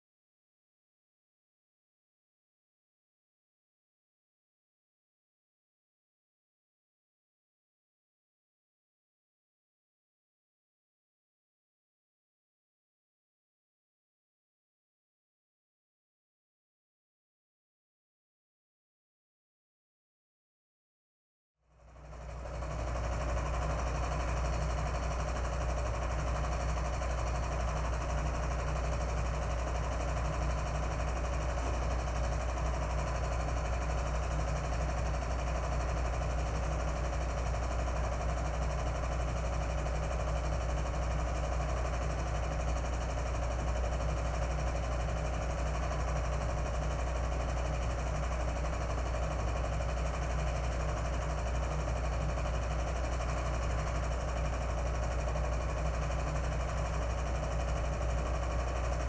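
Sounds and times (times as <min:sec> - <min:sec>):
film projector whirring: 0:21.7 - 0:59.0
low hum: 0:22.4 - 0:38.3.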